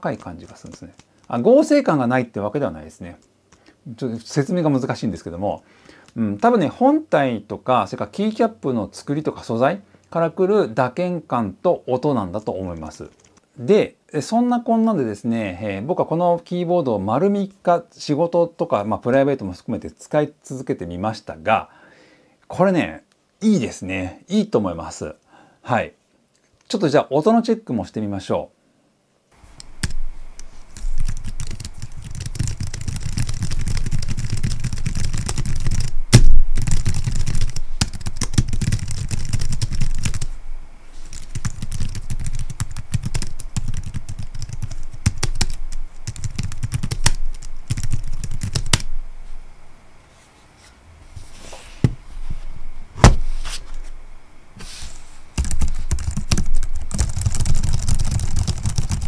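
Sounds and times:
typing on a keyboard: 0.0s - 1.4s, 13.1s - 13.4s, 30.8s - 36.0s, 36.6s - 40.3s, 41.1s - 48.9s, 55.4s - 59.0s.

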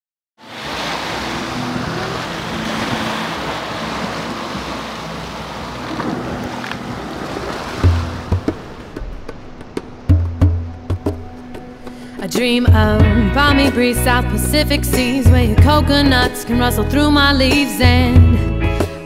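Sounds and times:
ocean surf washing: 0.4s - 16.7s.

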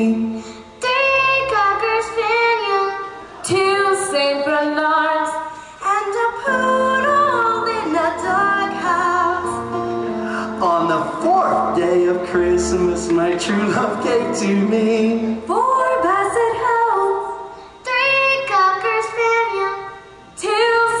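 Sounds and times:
live band playing: 7.0s - 15.8s.

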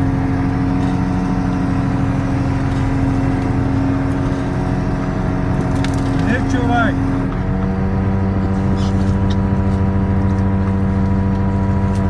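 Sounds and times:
boat engine humming: 0.0s - 12.0s.

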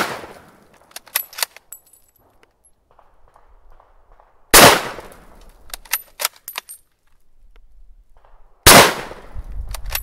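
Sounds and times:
shotgun blasts with echo: 0.0s - 0.6s, 2.9s - 5.2s, 8.1s - 9.4s.

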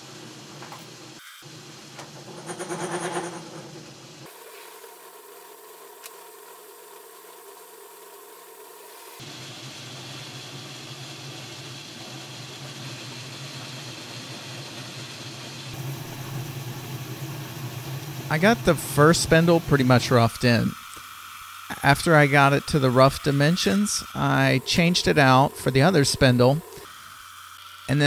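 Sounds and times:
lathe motor humming: 15.8s - 28.0s.

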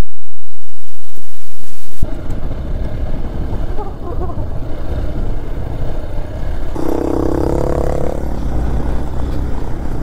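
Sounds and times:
motorcycle engine and wind rumble: 2.0s - 10.0s
steady pitched tone: 6.8s - 9.1s.

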